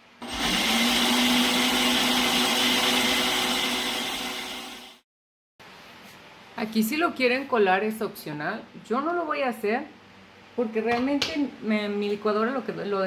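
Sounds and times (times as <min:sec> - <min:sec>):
blender motor running: 0:00.2 - 0:05.0.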